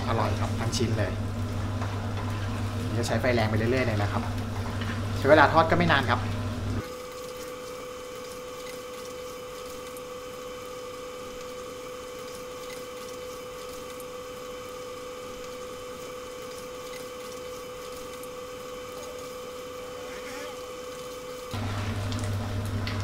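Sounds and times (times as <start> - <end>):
chicken wings deep-frying in oil: 0.0 - 23.0
steady hum: 0.0 - 23.0
wooden spatulas stirring in wok: 0.4 - 5.6.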